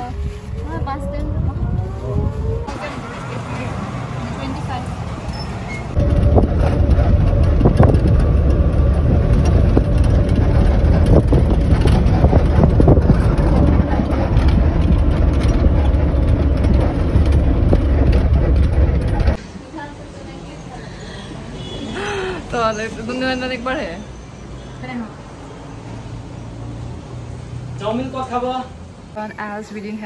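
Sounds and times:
engine and road rumble: 0.0 - 30.0
vehicle body rattles and knocks: 5.9 - 19.4.

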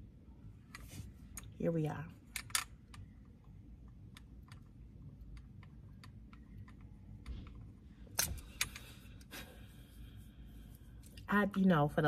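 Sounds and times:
jewelry clicking together: 2.3 - 3.1, 8.1 - 9.0.

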